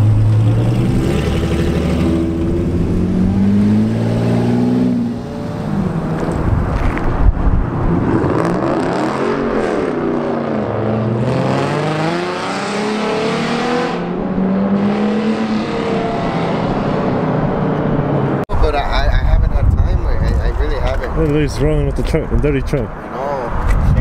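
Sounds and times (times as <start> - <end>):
car engine revving through gears: 0.0 - 7.1, 7.9 - 18.4.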